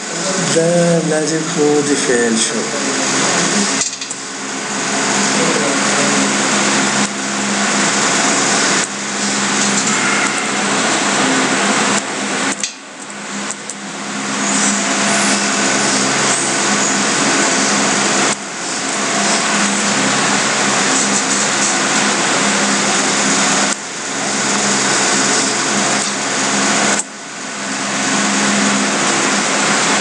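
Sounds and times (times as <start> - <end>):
low hum: 0.0 - 23.4
loud steady hiss: 0.0 - 30.0.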